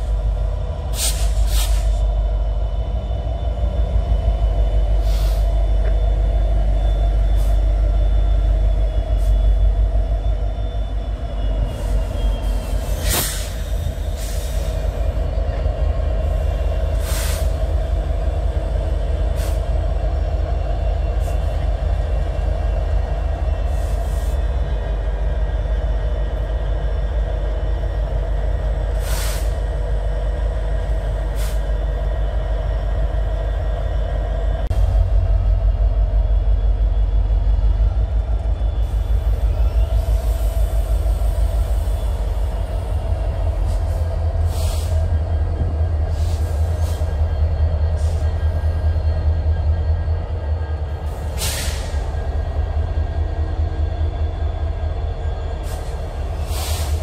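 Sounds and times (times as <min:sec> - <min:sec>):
diesel locomotive rumble: 0:00.0 - 0:57.0
faint high squeal: 0:01.8 - 0:15.6.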